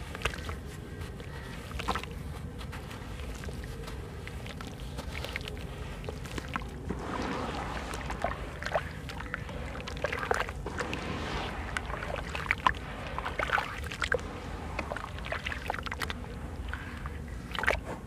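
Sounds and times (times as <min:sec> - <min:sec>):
hands squeezing watery slurry: 0:00.0 - 0:17.8
water splashing and sloshing: 0:00.0 - 0:18.0.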